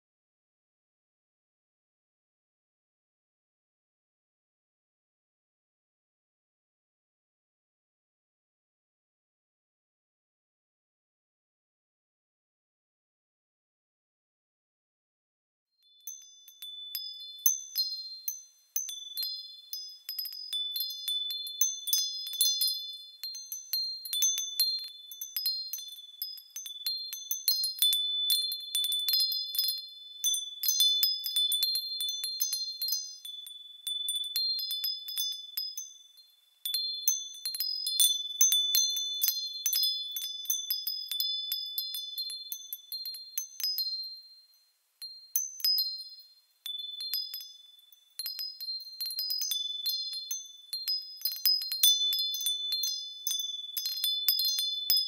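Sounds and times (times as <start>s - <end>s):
wind chimes tinkling: 15.8s - 55.0s.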